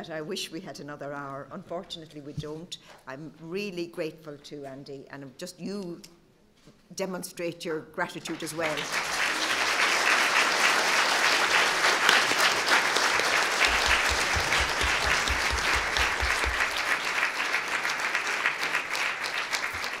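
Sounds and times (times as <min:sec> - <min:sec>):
audience applauding: 0:08.4 - 0:20.0.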